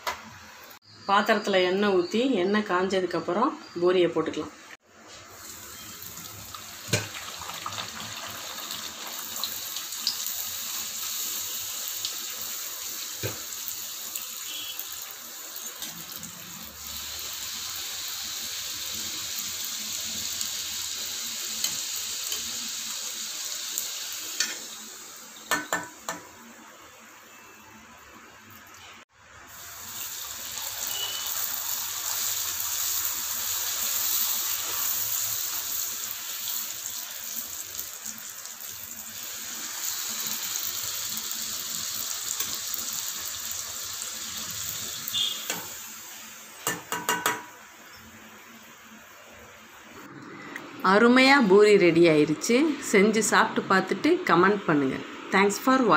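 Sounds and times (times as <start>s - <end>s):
oil sizzling and bubbling: 4.8s - 50.6s.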